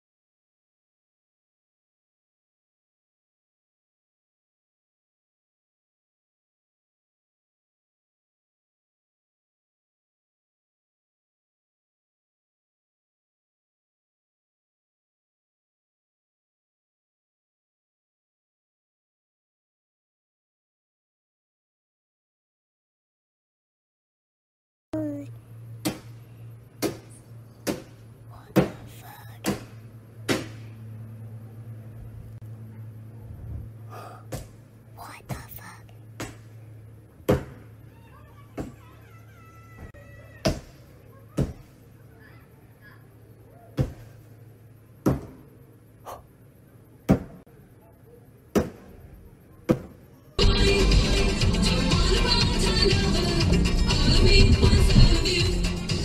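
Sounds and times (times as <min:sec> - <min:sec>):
steady low hum: 0:25.0 - 0:56.0
music: 0:50.4 - 0:56.0.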